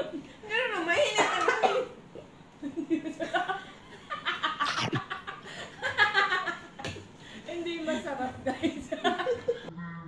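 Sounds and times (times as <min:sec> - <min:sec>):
women laughing: 0:02.6 - 0:06.8, 0:07.9 - 0:09.7.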